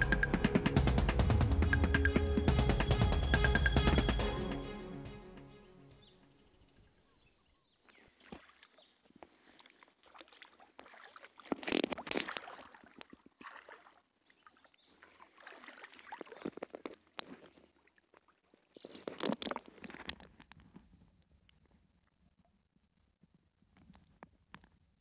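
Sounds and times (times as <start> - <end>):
water sloshing and splashing: 7.9 - 20.6.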